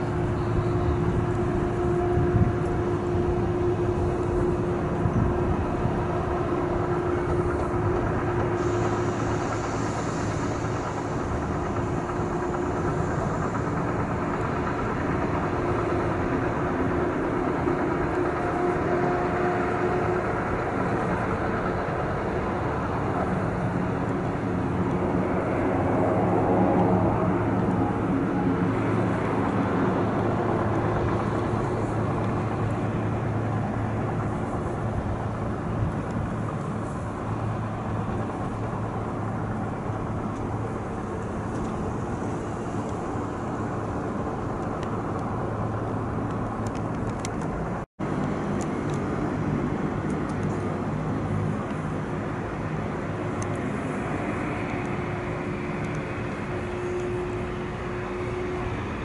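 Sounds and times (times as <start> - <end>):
turboprop engines humming: 0.0 - 59.0.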